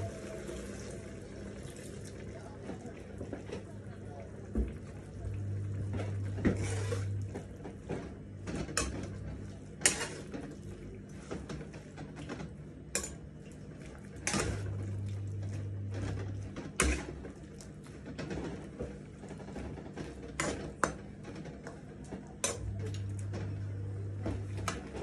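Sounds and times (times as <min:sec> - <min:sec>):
spatula scraping a pan: 0:06.4 - 0:07.2, 0:09.8 - 0:10.4, 0:16.7 - 0:17.2.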